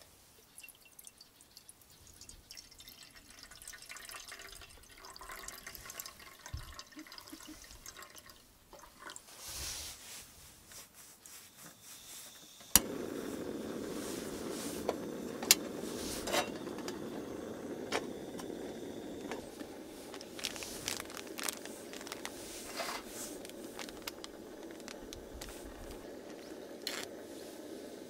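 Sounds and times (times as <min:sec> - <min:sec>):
gas burner roaring: 0:12.4 - 0:28.0
foil packet crinkling: 0:17.8 - 0:27.3.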